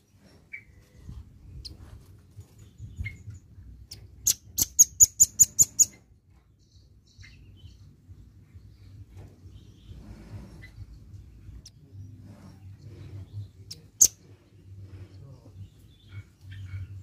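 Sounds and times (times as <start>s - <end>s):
bird calling with high chips: 3.9s - 6.0s.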